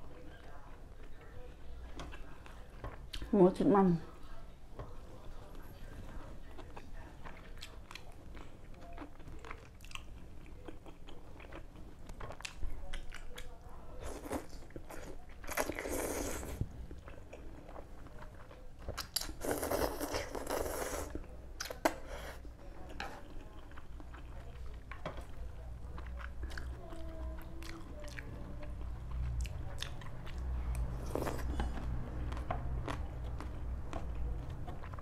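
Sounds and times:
wet chewing: 0:04.7 - 0:35.0
slurping noodles: 0:15.5 - 0:16.6, 0:19.4 - 0:21.2.

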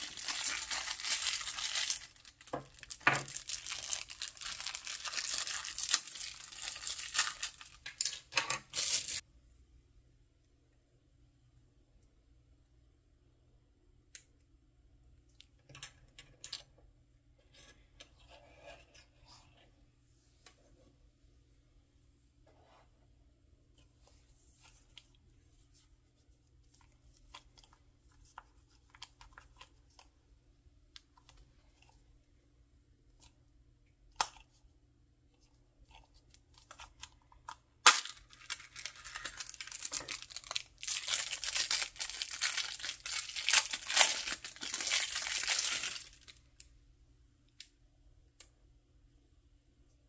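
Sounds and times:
plastic wrapping crinkling and tearing: 0:00.0 - 0:09.2, 0:37.8 - 0:46.4.

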